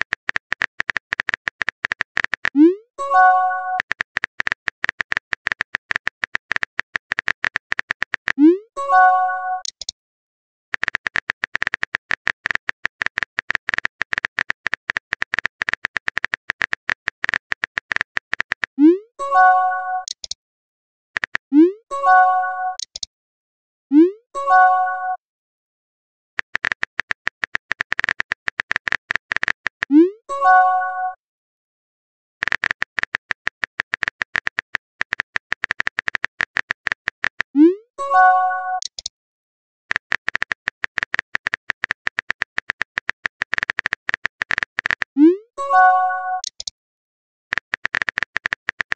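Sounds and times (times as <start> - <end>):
rapid keyboard typing clicks: 0.0 - 8.5, 10.7 - 18.8, 21.2 - 21.5, 26.4 - 29.9, 32.4 - 37.6, 38.8 - 39.1, 39.9 - 45.2, 46.4 - 46.7, 47.5 - 48.9.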